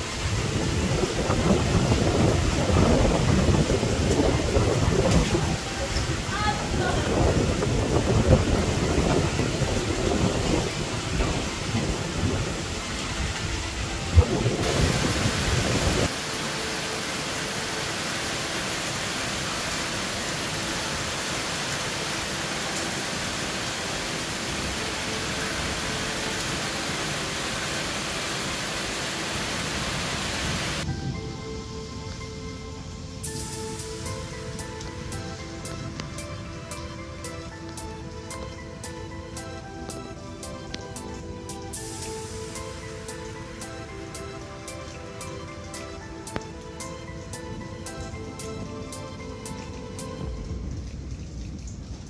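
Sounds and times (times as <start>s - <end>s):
gusting wind buffeting microphone: 0.0s - 16.2s
heavy rain: 0.0s - 52.0s.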